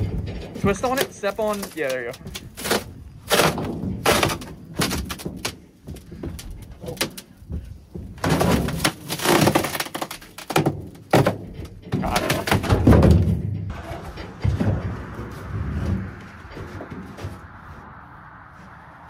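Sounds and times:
fiberglass cracking and crunching: 0:00.0 - 0:07.5, 0:08.1 - 0:13.4
scraping in metal dumpster: 0:10.8 - 0:17.7.

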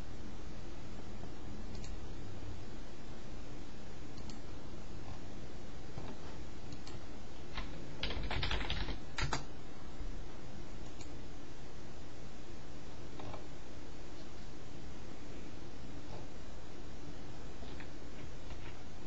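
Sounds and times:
background hiss: 0:00.0 - 0:19.0
keyboard typing: 0:06.0 - 0:09.5.

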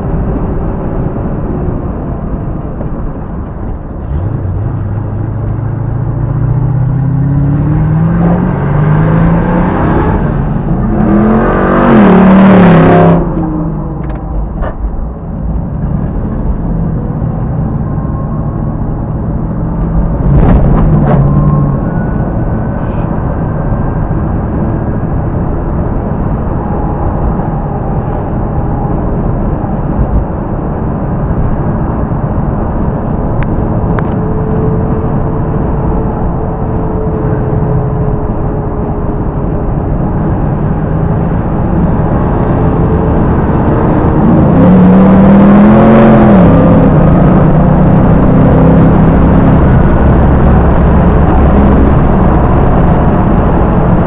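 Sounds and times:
car engine revving: 0:00.0 - 0:54.0
road noise: 0:00.0 - 0:54.0.

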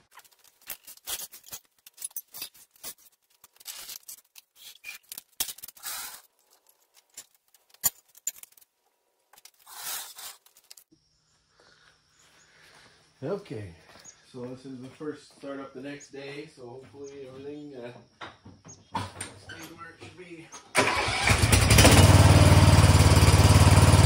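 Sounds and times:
scraping on concrete floor: 0:00.0 - 0:08.7, 0:09.3 - 0:10.9
tools clinking and knocking: 0:00.0 - 0:09.6.

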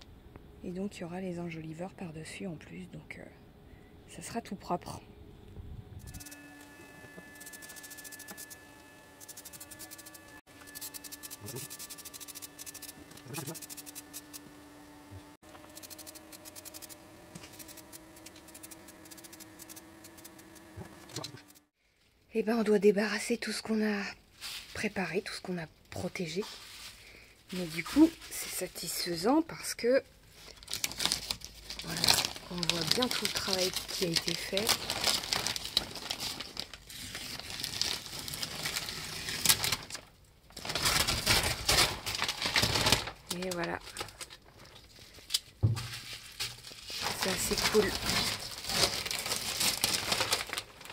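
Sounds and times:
faint steady hum: 0:00.0 - 0:22.4
plastic sheeting crackling rustle: 0:26.4 - 0:28.6, 0:30.3 - 0:45.2, 0:45.8 - 0:50.9.

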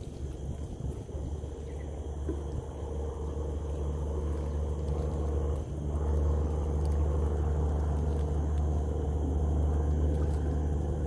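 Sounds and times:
engine droning: 0:02.2 - 0:11.0.

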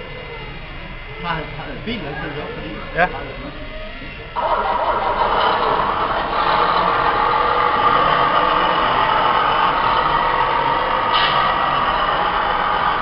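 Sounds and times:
higher-pitched engine burst: 0:01.1 - 0:13.0
diesel truck engine running: 0:04.2 - 0:13.0.

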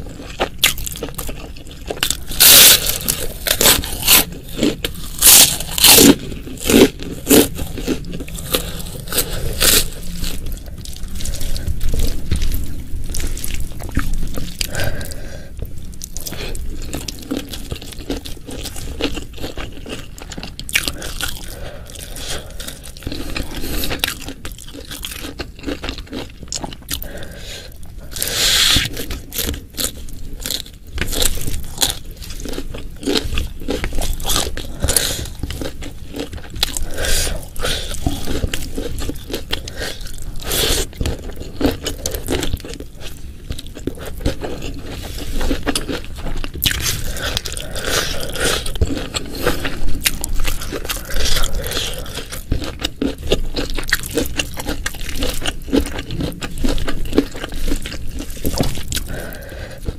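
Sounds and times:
food crunching and chewing: 0:00.0 - 0:59.9.

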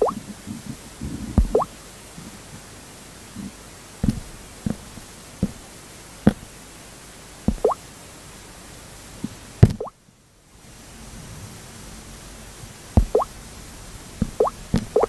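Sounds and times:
microphone hiss: 0:00.0 - 0:15.0
fingers tapping a touchscreen: 0:01.4 - 0:01.7, 0:07.5 - 0:07.8, 0:13.0 - 0:13.3, 0:14.2 - 0:15.0.

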